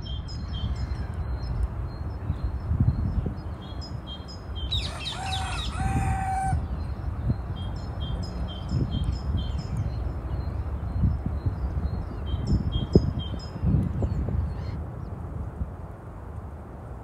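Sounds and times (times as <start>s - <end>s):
songbird chirping: 0.0s - 14.2s
rooster crowing: 4.7s - 6.6s.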